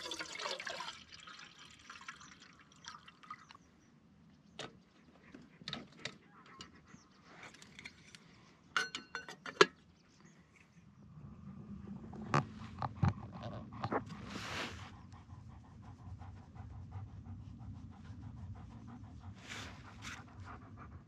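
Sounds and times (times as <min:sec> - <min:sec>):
liquid sloshing and dripping: 0:00.0 - 0:03.6.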